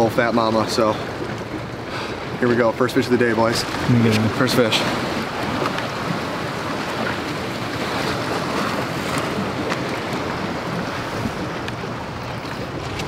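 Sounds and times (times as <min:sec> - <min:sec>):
water moving around boat: 0:00.0 - 0:13.0
wind on microphone: 0:03.6 - 0:13.0.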